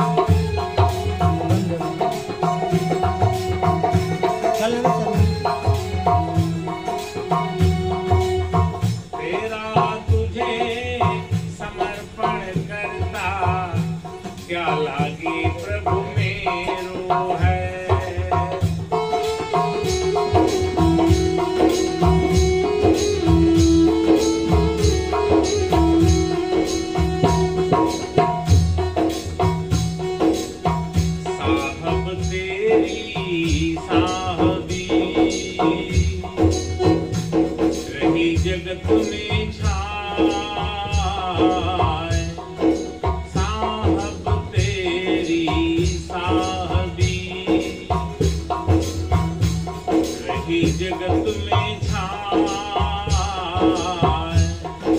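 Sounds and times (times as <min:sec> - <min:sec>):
hand drum beat: 0:00.0 - 0:54.9
held melody line: 0:00.0 - 0:54.9
jingling percussion: 0:00.0 - 0:54.9
person singing: 0:31.3 - 0:37.1.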